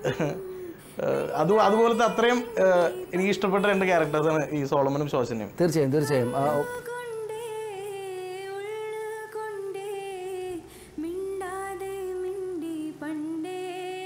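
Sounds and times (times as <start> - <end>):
woman humming a slow melody: 0.0 - 1.8.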